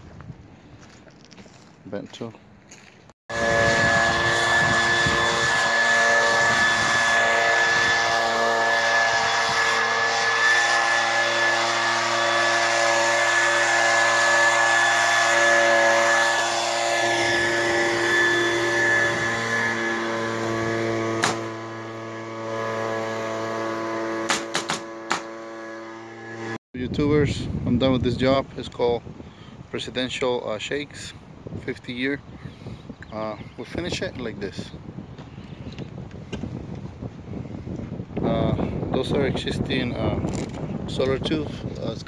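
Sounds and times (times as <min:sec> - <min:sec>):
drone propellers whining: 0:03.3 - 0:26.6.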